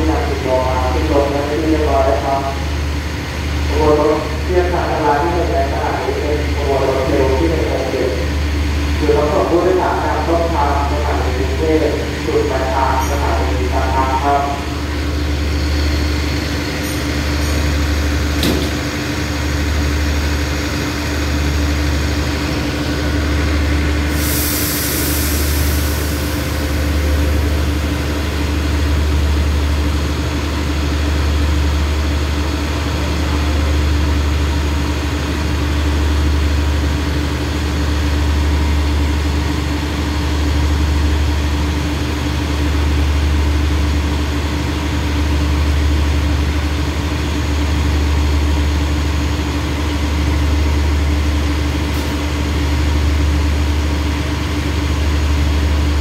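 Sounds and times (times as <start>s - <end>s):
diesel train engine idling: 0.0s - 56.0s
burst of hiss: 24.1s - 26.4s.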